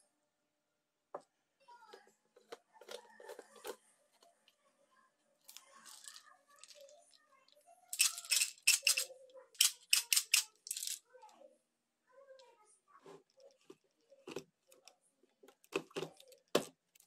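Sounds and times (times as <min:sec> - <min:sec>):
seeds rattling in plastic jar: 0:05.5 - 0:07.2, 0:07.9 - 0:11.0.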